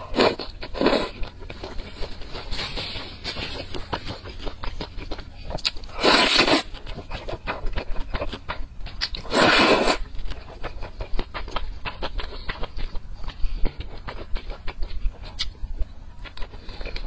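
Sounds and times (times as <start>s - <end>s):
wet chewing and mouth clicks: 0.0s - 17.0s
slurping noodles: 5.9s - 6.7s, 9.2s - 10.1s.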